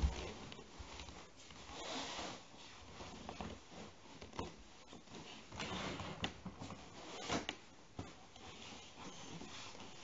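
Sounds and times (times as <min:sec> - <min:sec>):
rustling and knocks on wooden floor: 0:00.0 - 0:01.1.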